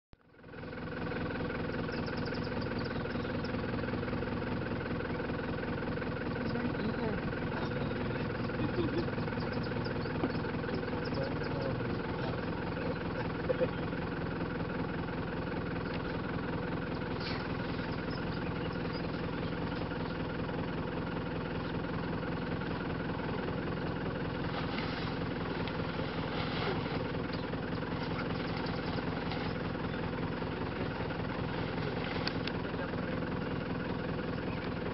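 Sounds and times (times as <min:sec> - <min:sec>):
vehicle engine idling: 0:00.2 - 0:34.9.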